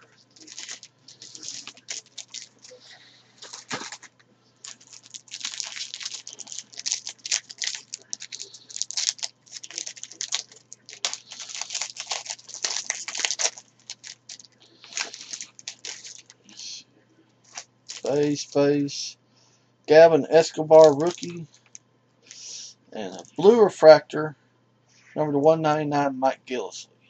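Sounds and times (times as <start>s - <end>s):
foil wrapper tearing and crinkling: 0.0s - 16.4s, 17.5s - 18.5s, 20.8s - 21.8s
cards rustling: 0.0s - 16.7s, 17.5s - 18.7s, 20.7s - 22.5s.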